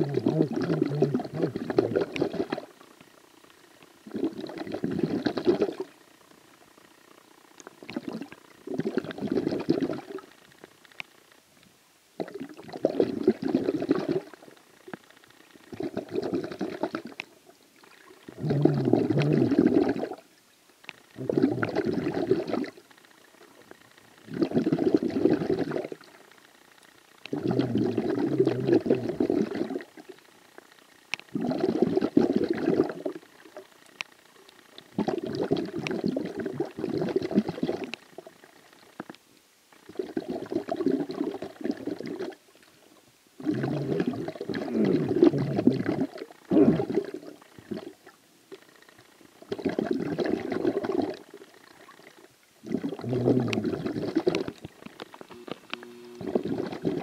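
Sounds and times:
underwater breathing bubbles: 0.0 - 2.7, 4.0 - 6.0, 7.8 - 10.3, 12.2 - 14.4, 15.7 - 17.2, 17.9 - 20.2, 21.1 - 22.8, 24.2 - 26.1, 27.3 - 30.1, 31.3 - 33.3, 34.9 - 38.3, 39.9 - 42.4, 43.4 - 48.1, 49.4 - 55.0, 55.7 - 57.0.

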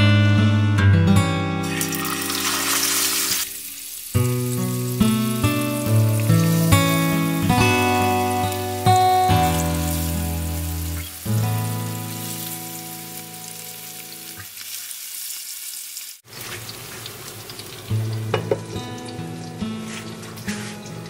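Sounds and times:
background music: 0.0 - 14.1
fish sizzling in hot oil: 1.6 - 21.0.

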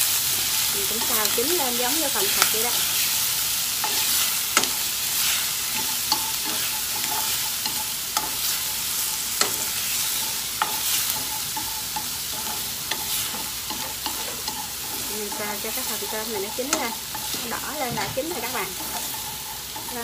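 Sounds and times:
shrimp sizzling in hot oil: 0.0 - 20.0
chopsticks clicking against pan: 3.8 - 4.8, 9.3 - 20.0.

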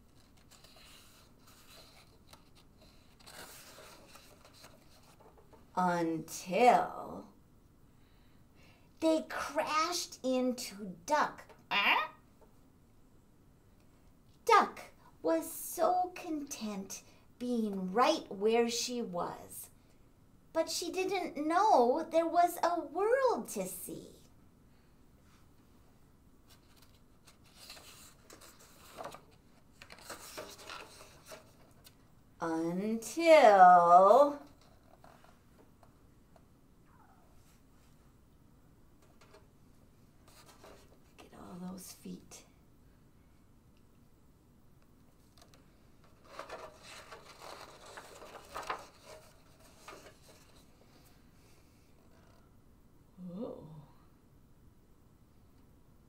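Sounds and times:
book page rustling: 0.0 - 5.6, 26.5 - 32.0, 45.2 - 51.1.

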